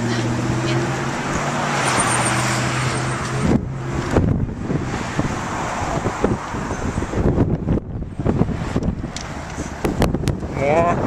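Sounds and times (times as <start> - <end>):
road traffic noise: 0.0 - 11.0
vehicle engine humming: 0.0 - 11.0
wind buffeting the microphone: 3.2 - 11.0.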